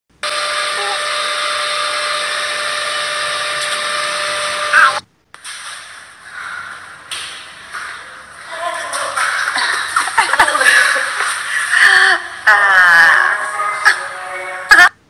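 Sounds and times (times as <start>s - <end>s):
electric blower whooshing with whine: 0.1s - 7.7s.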